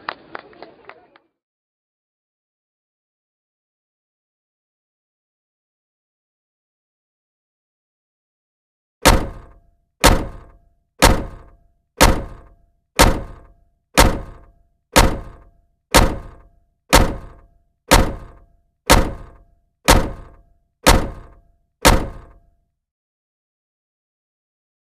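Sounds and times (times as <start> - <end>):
dull thuds with faint ring: 9.0 - 22.6.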